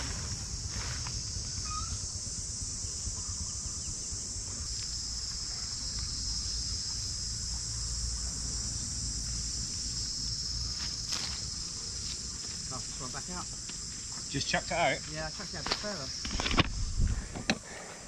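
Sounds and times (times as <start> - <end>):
high-pitched insect chorus: 0.0 - 18.0
wind rumble on microphone: 16.3 - 17.5.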